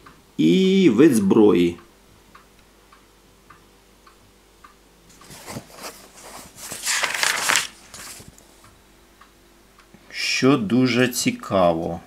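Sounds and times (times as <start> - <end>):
book pages rustling: 5.1 - 8.5.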